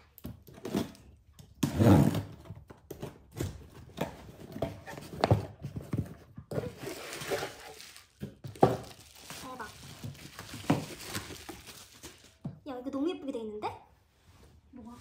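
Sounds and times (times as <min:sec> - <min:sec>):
cardboard and tape scraping: 0:01.6 - 0:02.5, 0:06.5 - 0:08.2
bubble wrap crinkling: 0:06.6 - 0:12.4.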